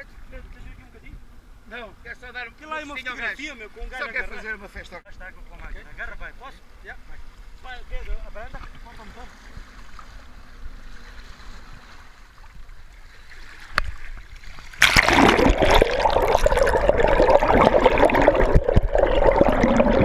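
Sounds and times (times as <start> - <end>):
water splashing and rushing: 9.0 - 20.0.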